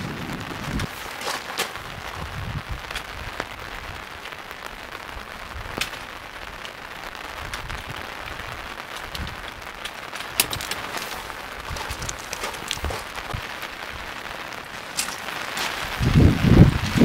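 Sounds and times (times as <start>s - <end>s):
rain on a tent: 0.0s - 17.0s.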